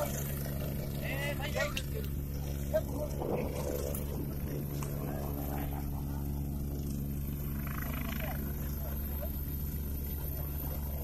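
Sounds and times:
helicopter running: 0.0 - 11.0.

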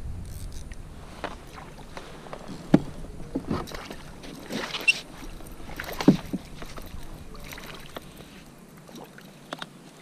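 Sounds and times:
water splashing: 1.0 - 10.0
hollow knocks against plastic kayak: 5.9 - 6.8.

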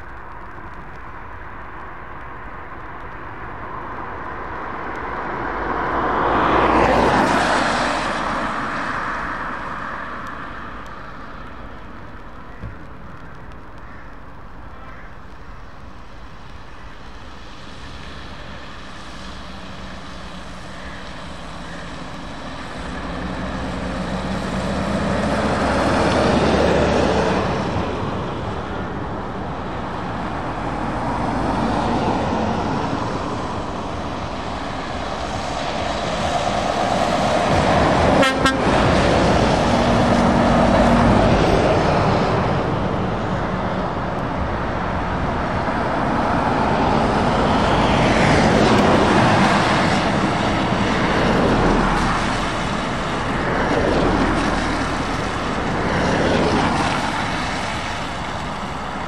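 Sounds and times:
lorry diesel engines passing: 0.0 - 13.6, 15.3 - 59.0
tyre hiss on wet road: 13.1 - 26.7, 46.1 - 59.0.

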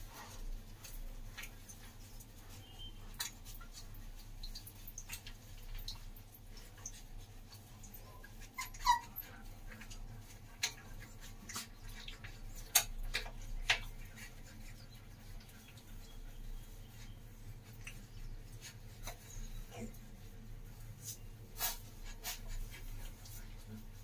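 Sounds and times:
puppies whimpering: 8.4 - 9.5.

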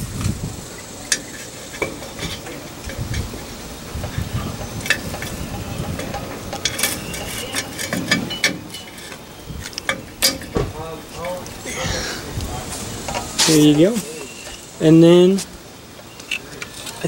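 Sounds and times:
brake cable clicks and scrapes: 1.1 - 10.5.

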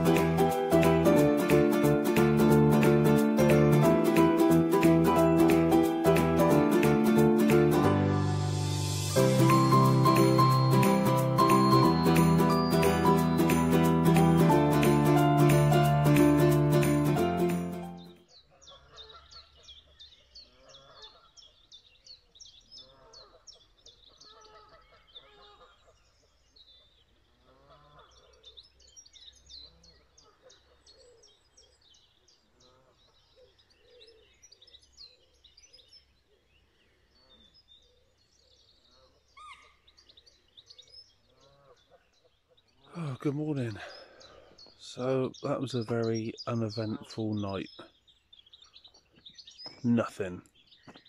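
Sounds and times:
high bird chirps: 8.7 - 14.4, 43.7 - 51.0
waterfowl calls: 20.5 - 21.4, 24.2 - 26.0, 27.4 - 28.4, 41.3 - 42.1.

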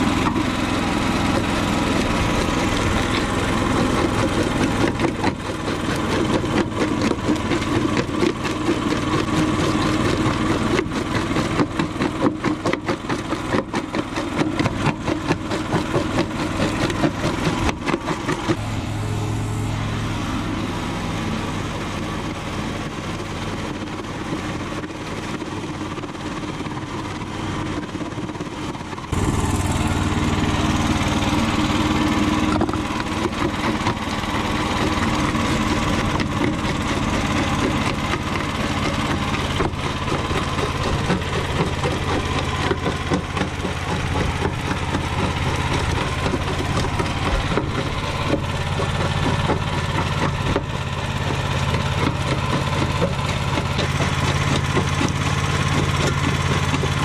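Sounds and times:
crusher jaws grinding concrete: 0.0 - 57.0
small petrol engine running: 0.0 - 57.0.

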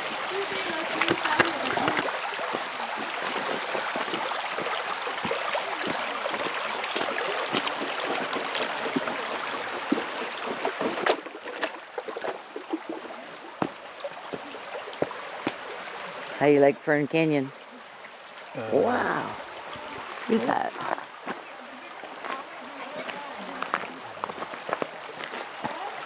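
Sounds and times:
creek running over stones: 0.0 - 26.0
footsteps on gravel: 22.2 - 22.4, 23.0 - 25.9.

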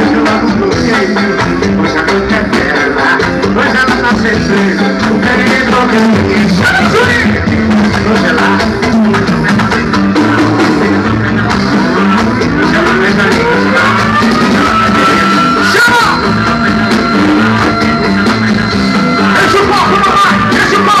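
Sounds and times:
loud live band music over speakers: 0.0 - 21.0
sliding melody line: 0.0 - 21.0.

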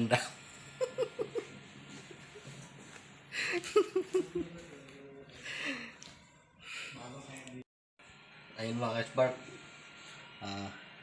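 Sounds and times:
man laughing: 0.8 - 1.5, 3.4 - 4.6.

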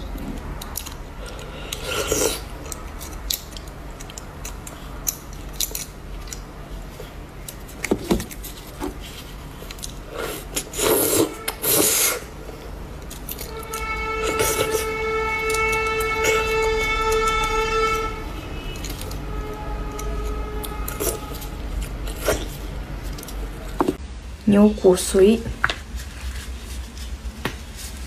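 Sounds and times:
fork scraping inside bones: 18.6 - 23.4.

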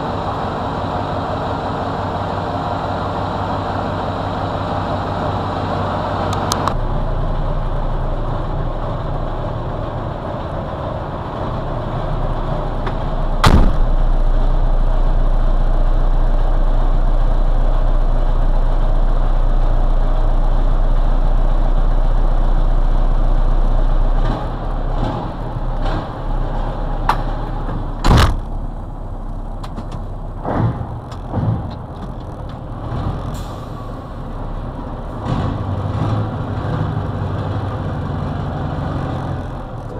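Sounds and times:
diesel engine idling: 0.0 - 39.9
knocks and thump inside cab: 13.4 - 14.0, 27.1 - 28.5, 29.6 - 32.3.

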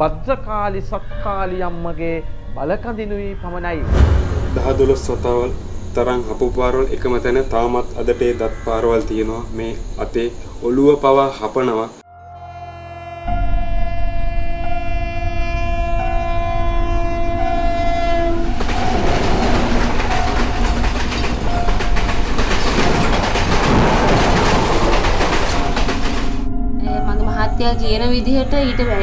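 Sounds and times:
locomotive engine rumble: 2.9 - 12.0, 15.9 - 29.0
locomotive horn blast: 12.1 - 20.5
wheels clattering over rail joints: 17.7 - 26.5.

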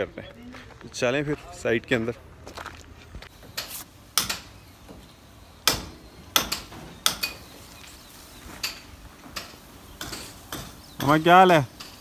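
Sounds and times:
hammer and chisel on brick: 3.4 - 5.0, 5.6 - 7.5, 8.6 - 12.0.

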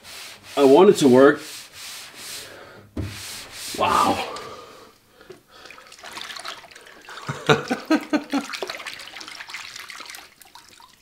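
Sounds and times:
water splashing and sloshing: 3.0 - 11.0.

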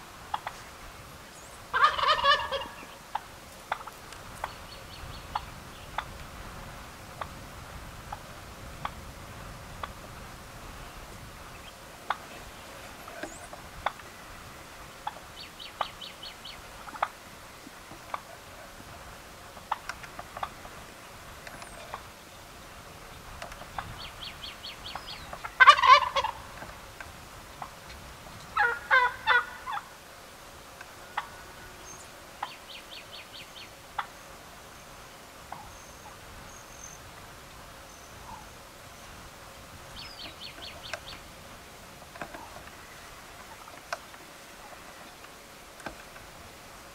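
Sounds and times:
turkey gobbling: 0.3 - 0.7, 1.7 - 4.6, 5.3 - 6.2, 12.0 - 14.2, 15.0 - 22.2, 23.4 - 26.8, 28.5 - 30.0, 30.8 - 31.8, 32.4 - 34.2, 35.5 - 36.2, 38.1 - 38.6, 42.1 - 45.2.

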